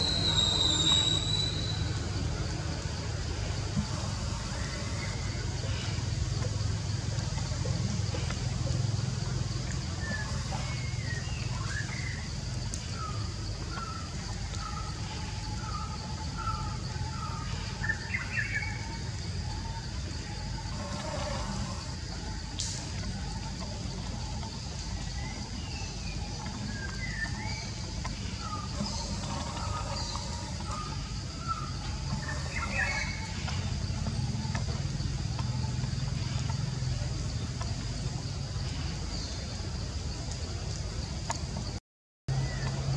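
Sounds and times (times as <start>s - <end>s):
bird whistling falling notes: 0.0s - 2.0s
higher bird chirps: 0.0s - 2.1s
high insect drone: 0.0s - 42.9s.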